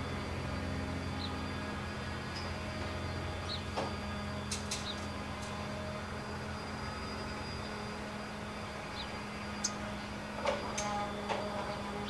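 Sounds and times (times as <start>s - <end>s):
yard machinery droning: 0.0s - 12.0s.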